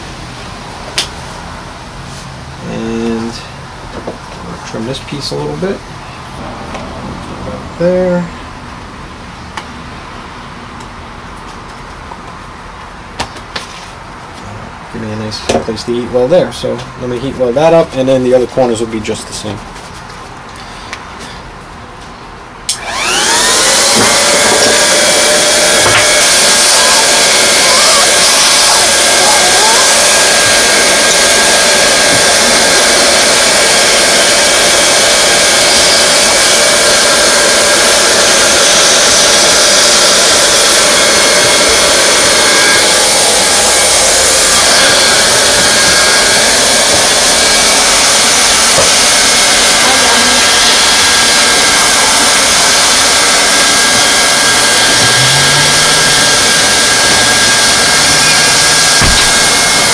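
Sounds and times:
hot-air welding gun hissing: 0:22.7 - 0:59.9.

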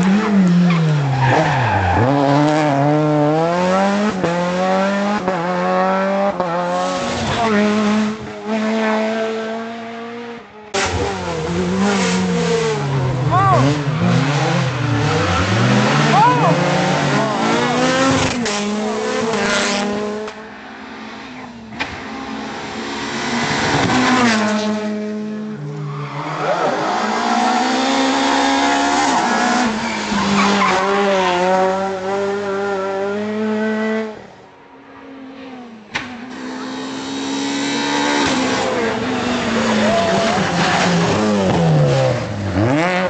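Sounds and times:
engines revving through gears: 0:00.0 - 0:20.4, 0:35.9 - 0:43.0
rally cars passing at speed: 0:00.0 - 0:43.0.

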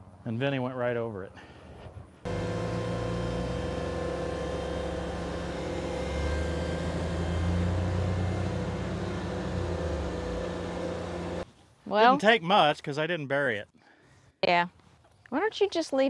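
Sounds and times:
tractor engine working under load: 0:02.3 - 0:11.4.

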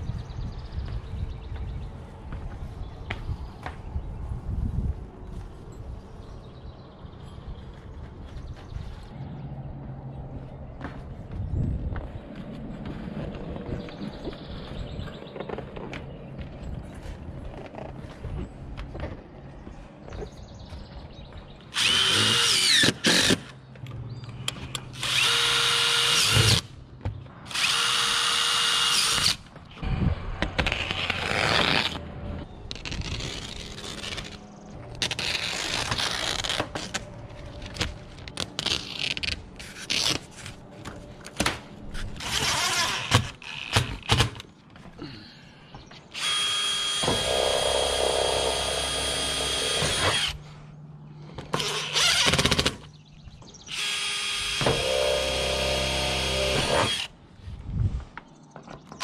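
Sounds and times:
cordless drill driving screws: 0:21.8 - 0:23.5, 0:25.0 - 0:26.7, 0:27.5 - 0:29.4, 0:46.2 - 0:50.4, 0:51.6 - 0:52.8, 0:53.7 - 0:57.1.

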